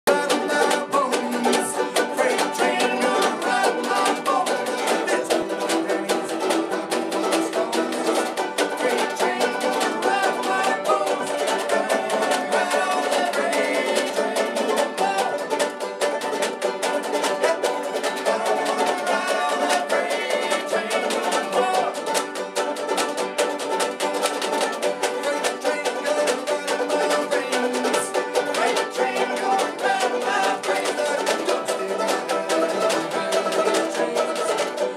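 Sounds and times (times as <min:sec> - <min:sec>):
banjos picking bluegrass tune: 0:00.0 - 0:34.9
man singing: 0:00.1 - 0:15.6, 0:17.4 - 0:22.2, 0:25.0 - 0:34.9.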